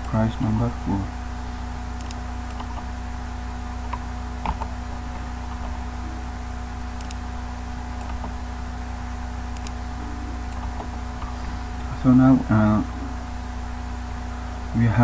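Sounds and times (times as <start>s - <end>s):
low electrical hum: 0.0s - 15.0s
computer keyboard keystrokes: 2.0s - 2.9s, 3.9s - 4.7s, 8.0s - 8.4s.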